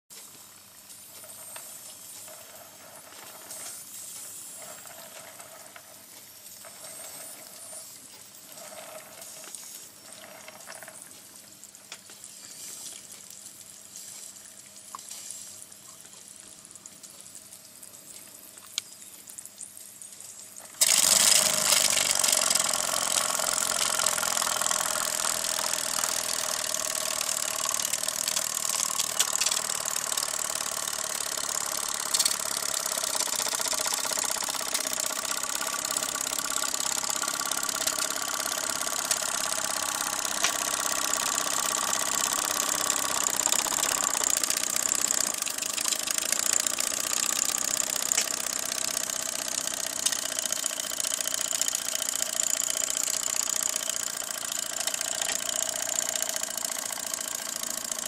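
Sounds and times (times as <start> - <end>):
small clicks: 0.2 - 58.0
faint hiss: 11.6 - 20.5.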